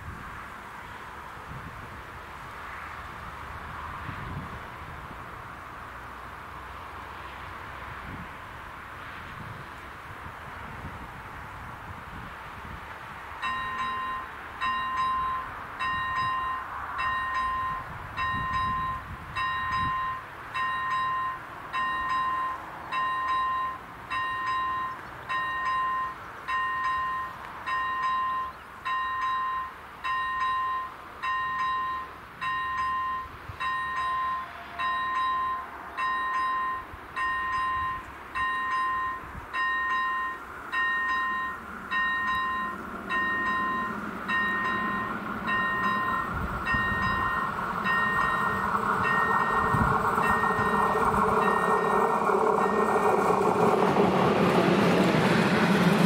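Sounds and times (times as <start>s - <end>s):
approaching train rumble: 0.0s - 56.0s
level crossing warning bell: 13.3s - 54.6s.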